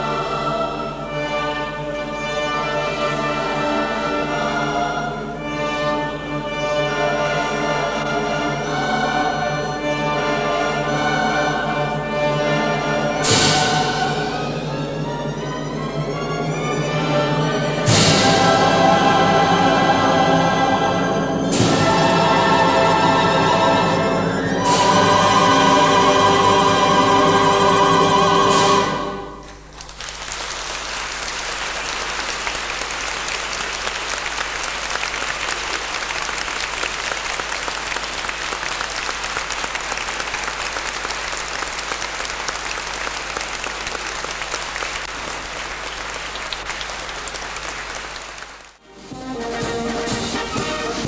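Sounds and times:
soprano with choir and orchestra: 0:00.0 - 0:29.7, 0:48.8 - 0:51.0
audience applause: 0:29.7 - 0:48.8.

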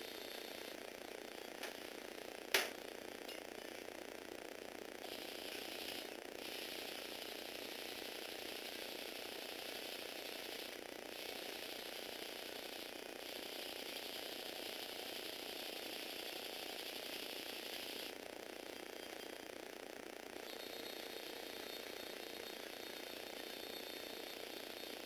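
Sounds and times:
toy car motor and gear rattle: 0:05.0 - 0:19.6.

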